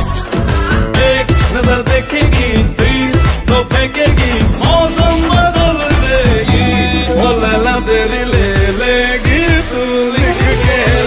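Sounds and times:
pop music: 0.0 - 11.0
deep bass drum hits: 2.6 - 9.5.

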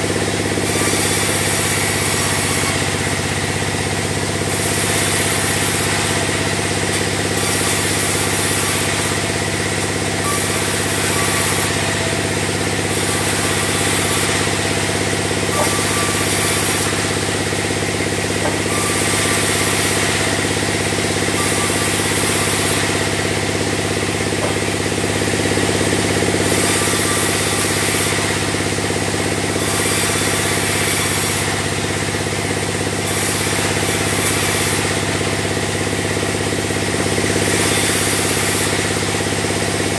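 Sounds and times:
band saw machine hum: 0.0 - 39.9
saw blade hissing through wood: 0.0 - 39.9.

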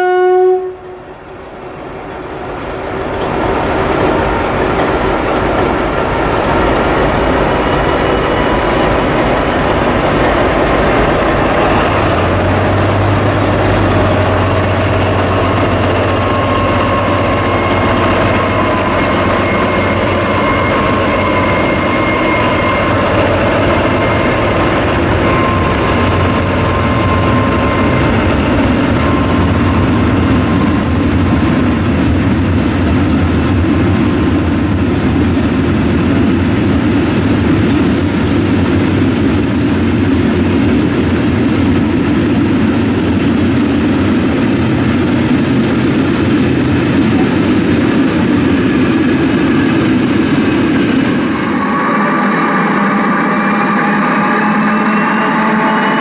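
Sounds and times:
diesel locomotive engine running: 0.0 - 56.0
thin high whine: 48.8 - 56.0.

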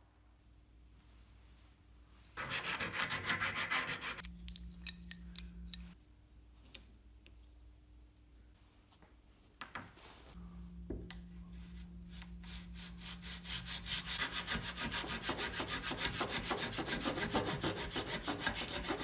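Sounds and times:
saw cutting wooden dowels: 13.1 - 19.0.

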